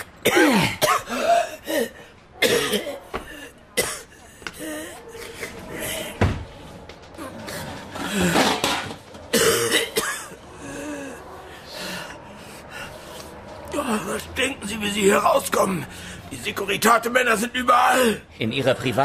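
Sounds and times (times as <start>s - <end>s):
person coughing and groaning: 0.0s - 6.0s, 8.1s - 10.9s.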